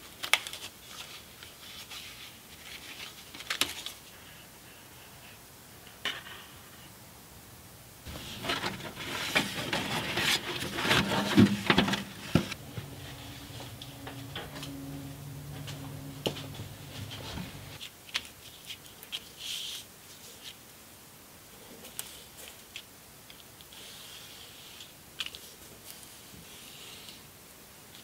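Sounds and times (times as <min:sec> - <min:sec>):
stiff paper rustling and crinkling: 0:00.0 - 0:04.4, 0:08.1 - 0:14.3
low steady hum: 0:03.8 - 0:17.8.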